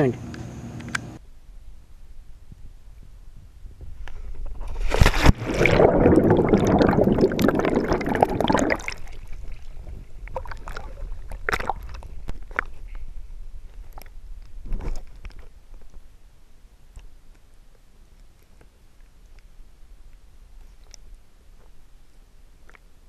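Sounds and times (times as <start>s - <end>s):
water sloshing and splashing: 4.4s - 13.0s
person splashing into pool: 4.8s - 9.4s
churning water: 4.9s - 12.7s.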